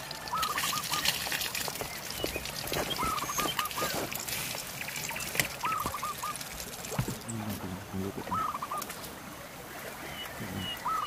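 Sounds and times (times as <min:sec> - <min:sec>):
river water rushing: 0:00.0 - 0:11.0
animal call: 0:02.8 - 0:04.0, 0:08.3 - 0:08.9, 0:10.0 - 0:11.0.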